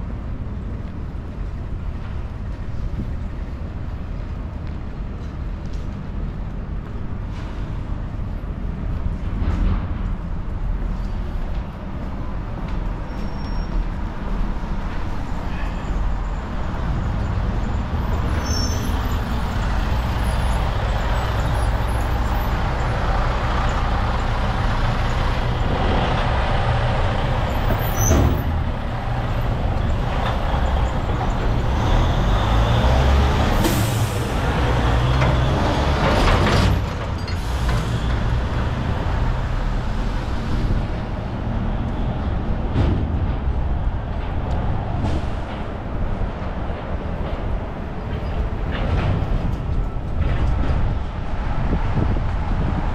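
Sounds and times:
truck and bus engines rumbling: 0:00.0 - 0:52.9
air brakes hissing: 0:33.4 - 0:34.9, 0:37.3 - 0:38.4.

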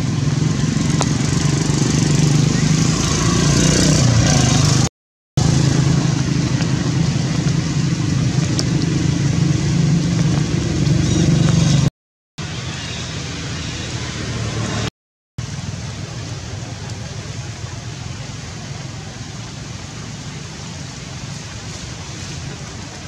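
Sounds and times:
engine humming: 0:00.0 - 0:23.0.

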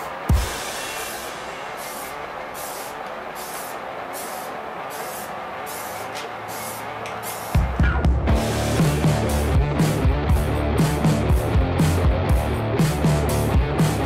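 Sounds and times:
spray-paint can hissing: 0:00.0 - 0:07.6.

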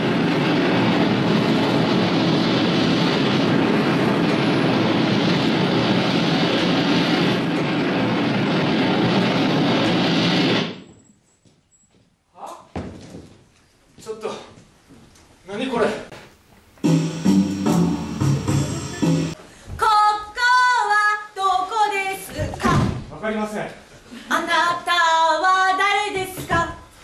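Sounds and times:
loud rushing noise: 0:00.0 - 0:10.8, 0:16.8 - 0:19.4.

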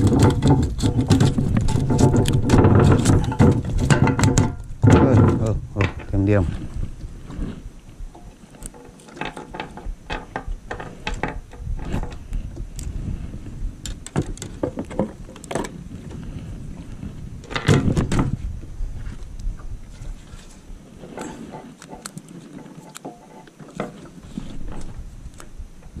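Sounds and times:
tackle clicks and knocks on boat: 0:00.0 - 0:06.2
wind and water rumble: 0:00.0 - 0:26.0.

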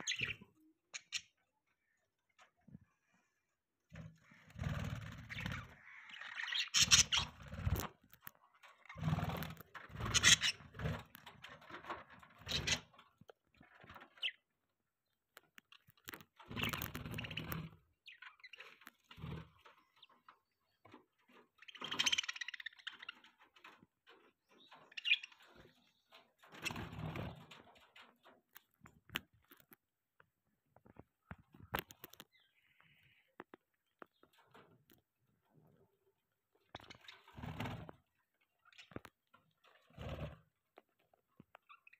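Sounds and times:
budgerigars chattering and chirping: 0:00.0 - 0:01.4, 0:04.2 - 0:07.8, 0:08.9 - 0:11.0, 0:21.6 - 0:23.2, 0:24.6 - 0:25.6.

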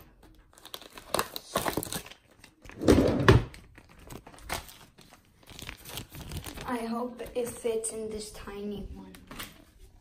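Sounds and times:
bag crinkling and rustling: 0:03.5 - 0:06.9.

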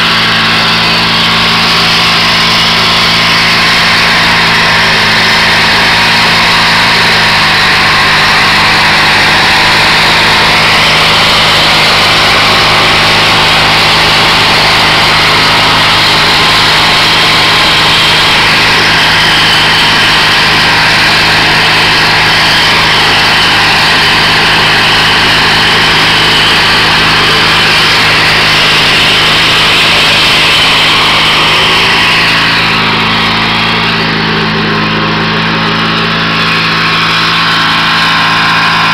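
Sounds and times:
tractor engine running: 0:00.0 - 0:38.9.

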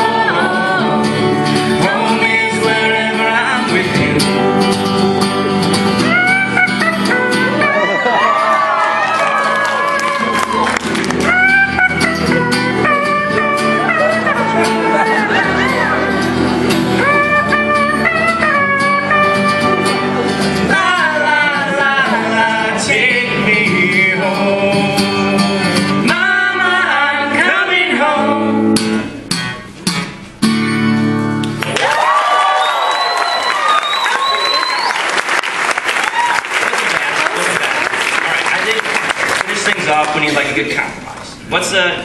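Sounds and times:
woman singing: 0:00.0 - 0:04.5
man singing along: 0:00.0 - 0:04.8, 0:19.8 - 0:28.8
guitars: 0:00.0 - 0:35.0.

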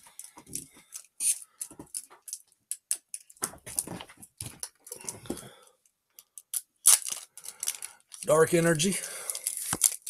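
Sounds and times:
trading cards clicking and rustling: 0:06.2 - 0:10.0.

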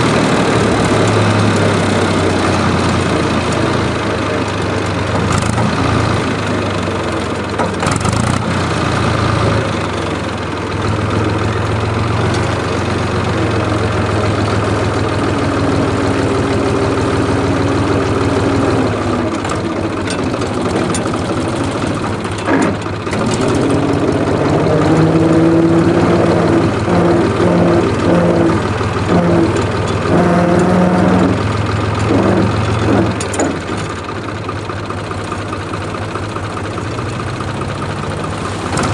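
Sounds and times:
tractor diesel engine running: 0:00.0 - 0:38.9.

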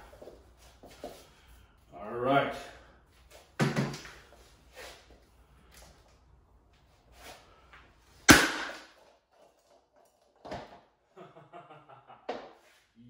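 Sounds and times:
axe cracking helmet shell: 0:08.3 - 0:09.1.

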